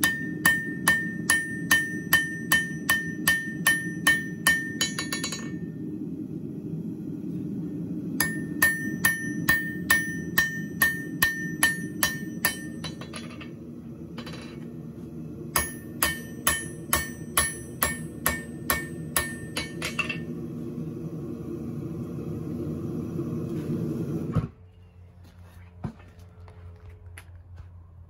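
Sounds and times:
hammer ringing on steel: 0.0 - 5.8, 8.2 - 13.4, 15.6 - 20.3
gas forge humming: 0.0 - 28.0.

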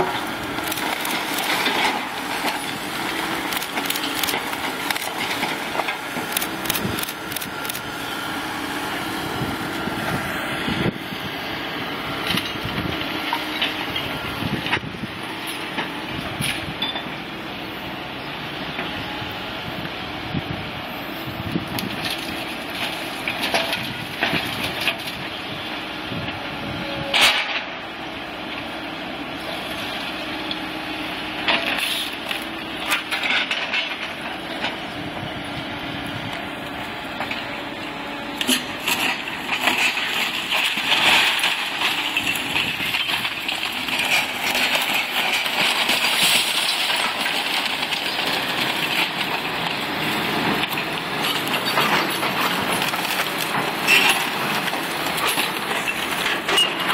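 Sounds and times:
debris cracking and crashing: 0.0 - 7.7, 38.4 - 56.9
excavator diesel engine: 0.0 - 56.9.

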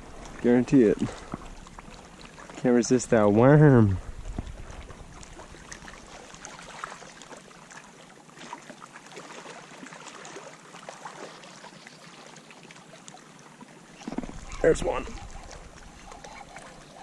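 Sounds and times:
waves lapping on rocky shore: 14.0 - 17.0.

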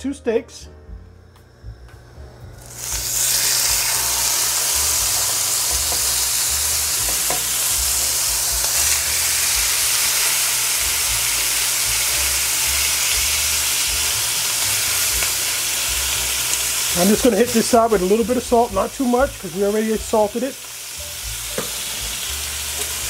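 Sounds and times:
steaks sizzling in a pan: 2.6 - 23.0.

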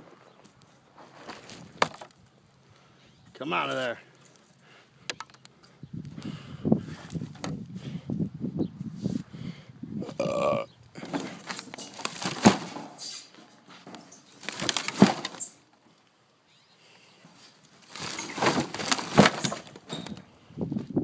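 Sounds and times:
wooden boards clattering: 11.0 - 15.6, 17.9 - 20.2.

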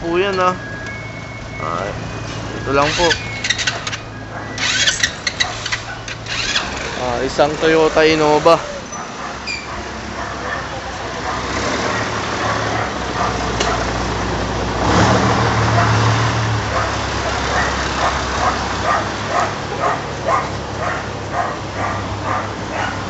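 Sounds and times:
street traffic: 0.0 - 23.0
vehicle engine running: 0.0 - 23.0
dog barking: 5.3 - 6.2, 8.6 - 14.0, 15.1 - 23.0.

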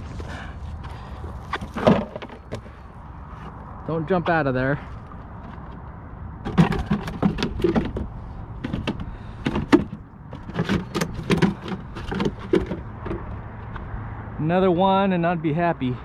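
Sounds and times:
plastic bucket knocking and clattering: 1.6 - 2.6, 6.4 - 13.3.

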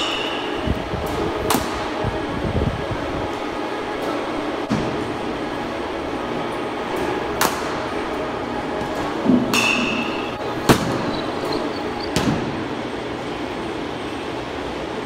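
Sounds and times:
steady background rumble: 0.0 - 15.0
baseball bat cracks: 7.4 - 7.8.

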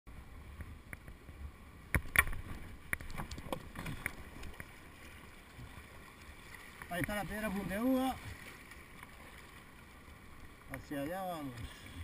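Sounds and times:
kayak and paddle knocking: 1.9 - 9.8, 10.4 - 11.8.

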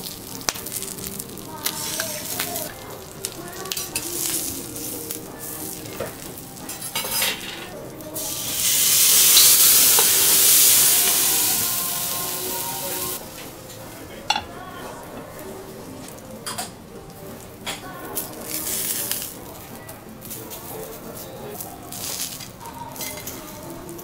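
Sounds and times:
vegetables sizzling on griddle: 0.0 - 13.2
steam hissing: 8.2 - 13.2.

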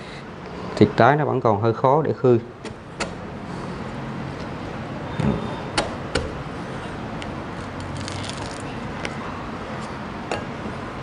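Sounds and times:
husk cracking and snapping: 7.7 - 8.7.

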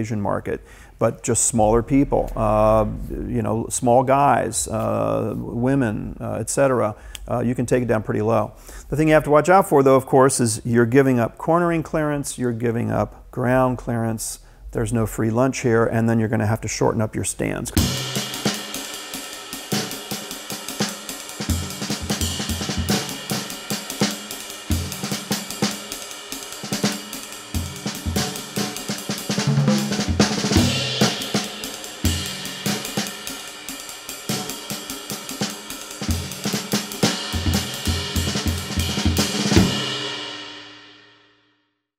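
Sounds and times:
background music with drum kit: 17.8 - 41.2.

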